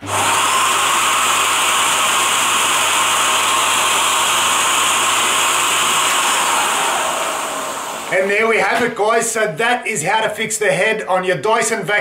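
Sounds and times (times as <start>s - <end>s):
vacuum cleaner running: 0.0s - 8.8s.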